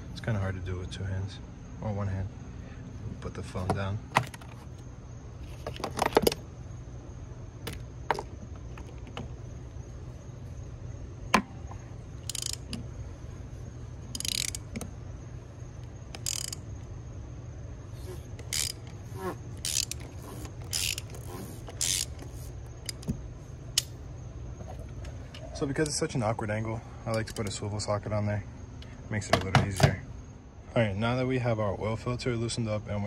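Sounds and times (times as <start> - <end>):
hand ratchet clicking: 12.2 - 12.8, 14.1 - 14.8, 16.1 - 16.6, 18.0 - 23.1.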